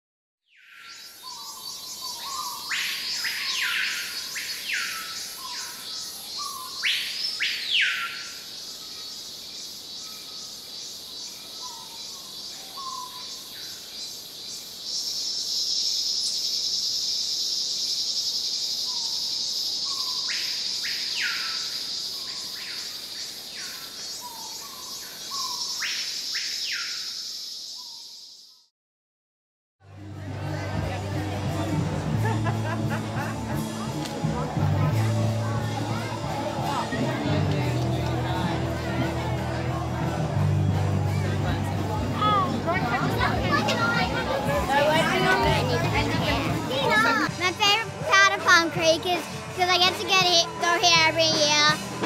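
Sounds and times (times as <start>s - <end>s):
birds whistling rising calls: 0.5s - 9.3s, 10.0s - 13.8s, 14.9s - 23.0s, 23.6s - 28.2s
insect chorus: 0.5s - 28.7s
loud insect drone: 0.8s - 28.5s.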